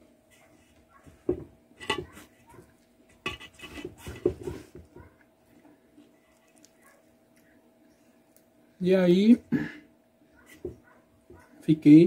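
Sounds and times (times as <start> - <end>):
fingers scraping metal bowl: 3.2 - 4.7.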